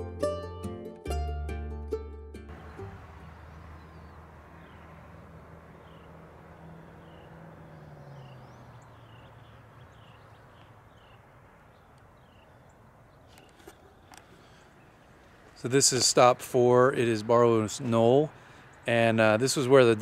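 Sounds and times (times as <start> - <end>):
bird chirping: 2.5 - 15.7.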